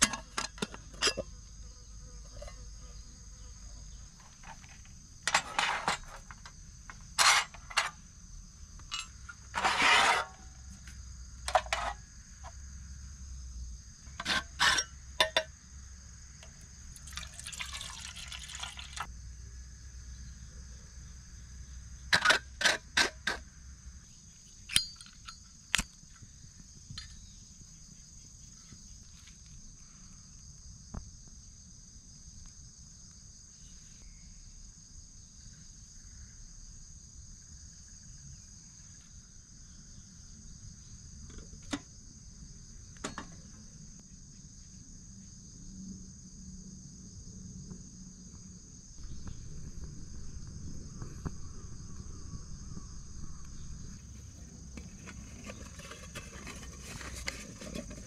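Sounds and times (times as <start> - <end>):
crickets chirping: 0.0 - 58.0.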